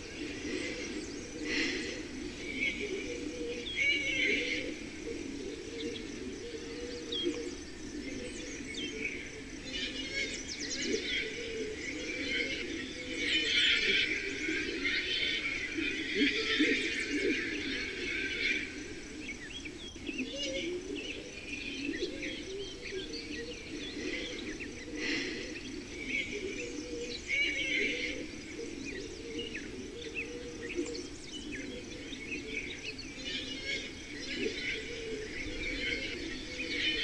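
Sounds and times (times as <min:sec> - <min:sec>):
small birds chirping: 0:00.0 - 0:37.0.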